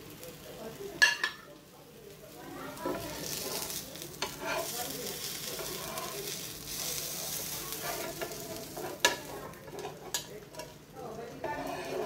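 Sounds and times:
fish sizzling in oil: 0.0s - 12.0s
metal spatula scraping pan: 2.8s - 4.8s, 5.5s - 6.4s, 7.7s - 10.8s, 11.4s - 12.0s.

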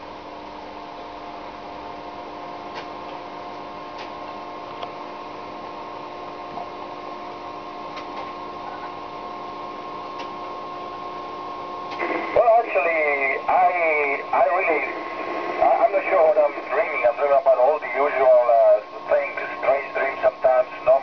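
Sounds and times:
radio hum with hiss: 0.2s - 21.0s.

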